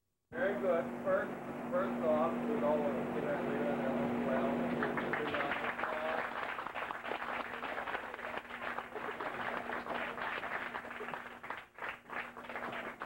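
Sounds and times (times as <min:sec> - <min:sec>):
group of people clapping: 0:04.7 - 0:13.0.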